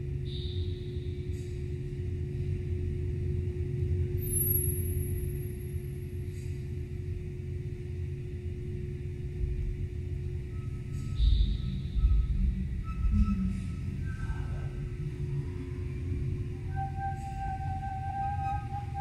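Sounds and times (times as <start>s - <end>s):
high whistle-like tone: 0.2s - 1.1s, 10.5s - 14.7s, 16.4s - 19.0s
low rumbling drone: 5.0s - 19.0s.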